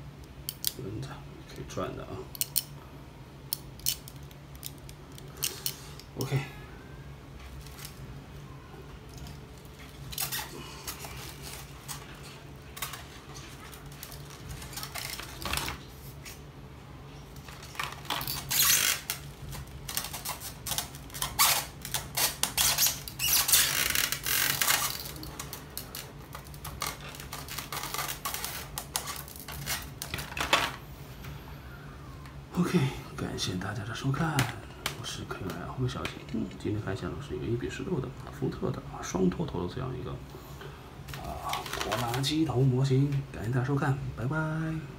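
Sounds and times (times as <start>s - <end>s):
low steady hum: 0.0s - 44.9s
plastic packaging crinkling: 7.4s - 8.1s, 9.1s - 16.3s, 17.3s - 30.5s, 41.1s - 42.5s
clicks and knocks of toy handling: 41.1s - 42.3s.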